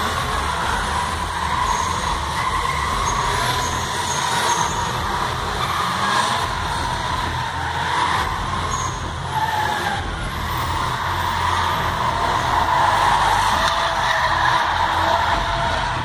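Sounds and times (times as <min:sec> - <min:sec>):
car engines revving: 0:00.0 - 0:16.0
tyre squeal: 0:00.0 - 0:16.0.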